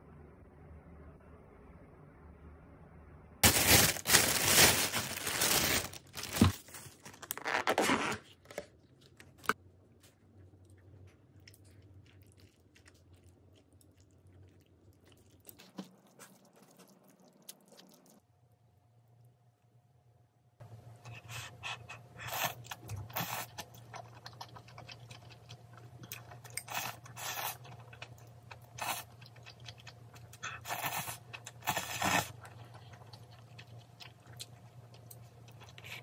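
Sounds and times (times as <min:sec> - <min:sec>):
plastic packaging crinkling: 0:03.4 - 0:09.6.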